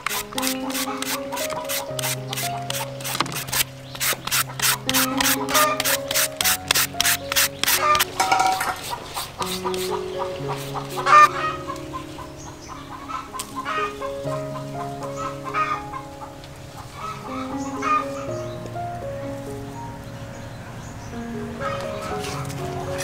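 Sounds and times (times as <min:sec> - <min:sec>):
peeler rasping fruit: 0:00.0 - 0:11.3
background music with held notes: 0:00.0 - 0:23.0
chickens clucking: 0:07.8 - 0:13.9.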